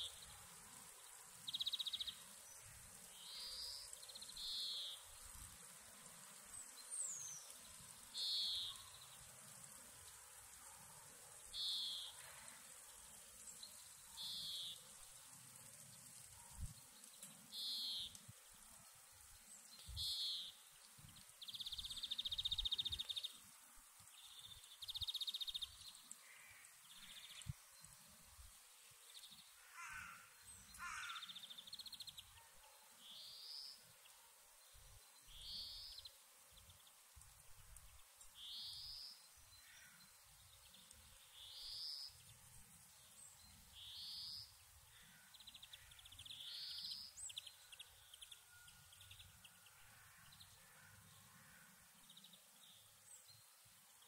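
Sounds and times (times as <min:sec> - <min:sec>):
songbirds singing: 0:00.0 - 0:54.0.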